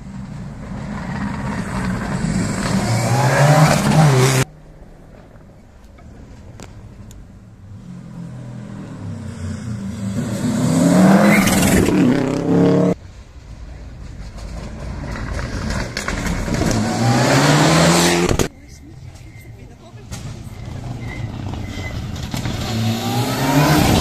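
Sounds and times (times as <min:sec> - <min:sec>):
rally car engine revving: 0:00.0 - 0:04.5, 0:07.8 - 0:13.0, 0:14.4 - 0:18.5, 0:20.1 - 0:24.0.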